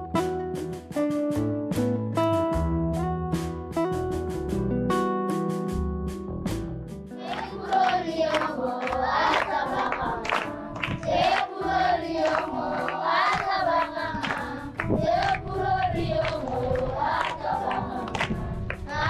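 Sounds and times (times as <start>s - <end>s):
group of voices singing: 7.2s - 19.0s
sharp percussive beats: 7.2s - 19.0s.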